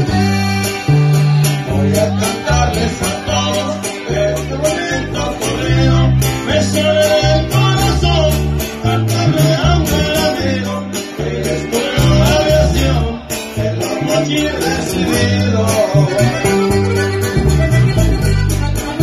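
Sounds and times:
band playing guitars: 0.0s - 19.0s
heavy bass line: 0.0s - 19.0s
person singing: 0.8s - 17.2s
steady beat: 16.1s - 19.0s.

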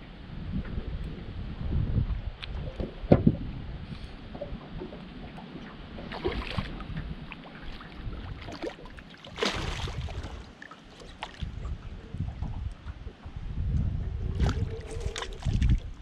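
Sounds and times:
wind rumble on microphone: 0.0s - 16.0s
fish thrashing and splashing: 6.0s - 6.8s, 7.4s - 11.5s, 14.4s - 16.0s.

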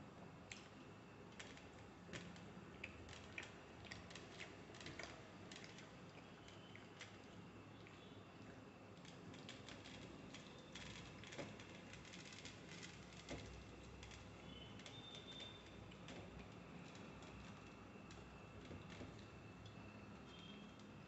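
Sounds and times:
flatbread tearing crackle: 9.0s - 18.2s.

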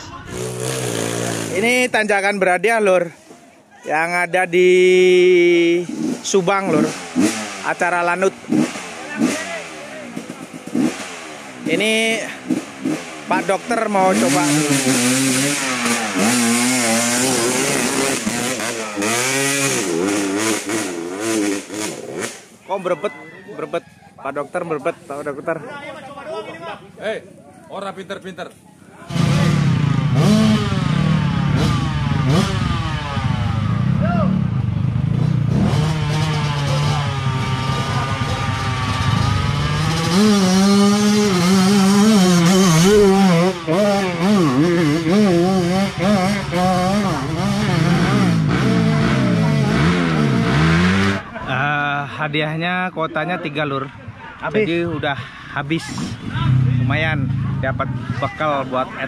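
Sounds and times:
dirt bike engine revving: 0.0s - 2.1s, 4.7s - 22.6s, 29.1s - 51.6s.

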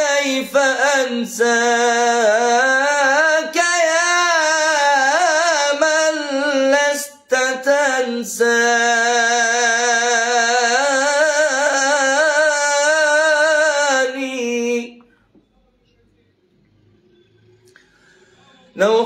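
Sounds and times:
man singing unaccompanied: 0.0s - 15.1s, 18.6s - 19.0s.

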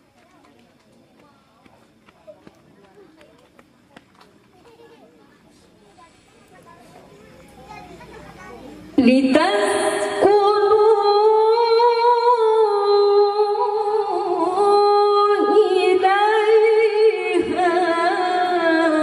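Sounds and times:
woman reciting melodically: 9.0s - 19.0s.

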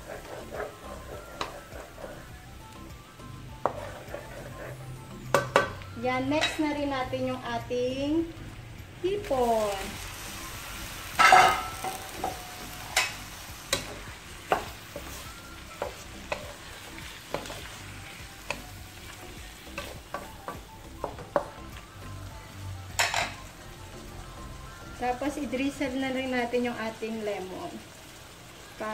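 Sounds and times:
shrimp sizzling in butter: 0.0s - 28.9s
wooden spatula knocking on pan: 5.3s - 5.8s, 14.5s - 14.8s, 19.8s - 21.6s.

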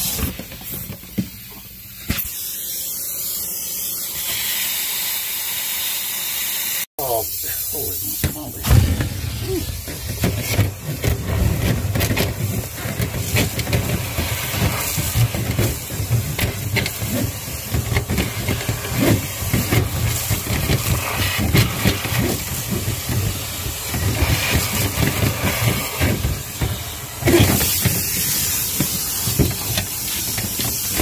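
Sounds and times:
rushing air hiss and hum: 7.0s - 31.0s
debris rattling in duct: 8.6s - 31.0s.

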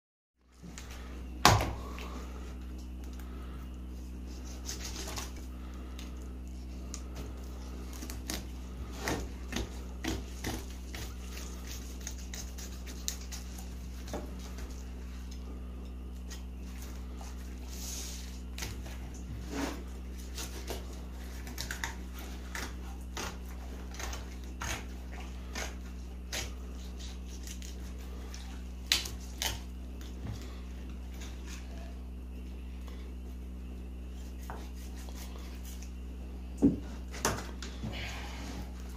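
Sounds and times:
steady low hum: 0.4s - 38.9s
knife scraping fish on board: 7.9s - 14.7s.

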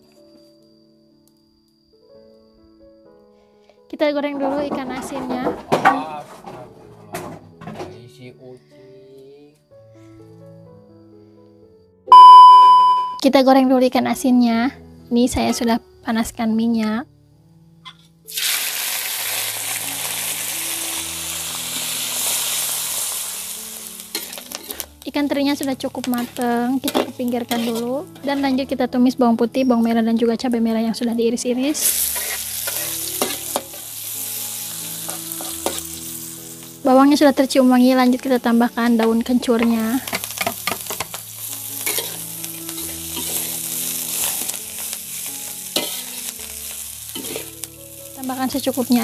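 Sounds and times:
food sizzling in hot oil: 18.2s - 29.2s, 31.8s - 49.0s
spatula stirring in a wok: 24.0s - 24.9s, 26.1s - 28.5s, 31.9s - 36.7s, 40.1s - 47.8s.

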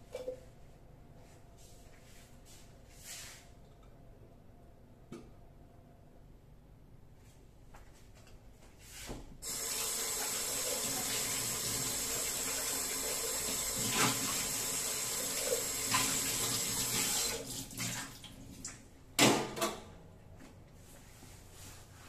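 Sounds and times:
tap water running into sink: 9.4s - 18.4s.

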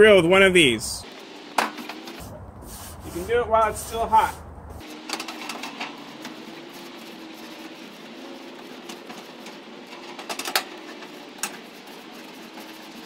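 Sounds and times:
wire brush scraping grill grates: 1.0s - 13.0s
steady hum: 2.2s - 4.9s.

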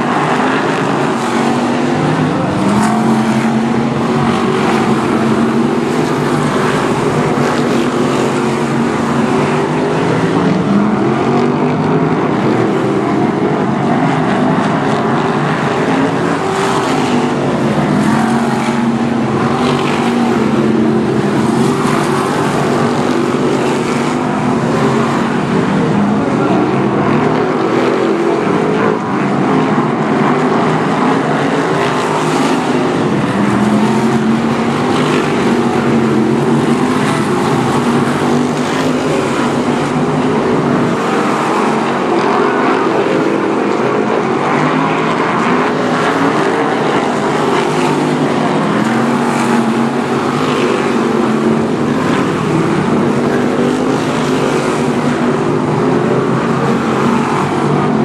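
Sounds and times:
race car engines revving: 0.0s - 58.0s.

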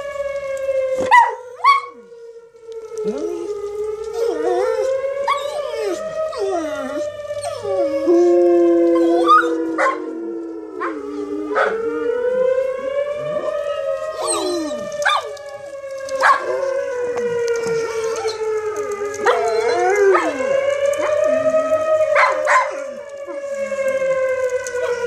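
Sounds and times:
warning siren wailing: 0.0s - 25.0s
dogs barking: 1.0s - 2.0s, 9.0s - 10.1s, 10.8s - 11.9s, 14.2s - 16.9s, 19.1s - 21.4s, 22.1s - 23.5s
dogs howling: 1.0s - 2.1s, 2.8s - 25.0s.

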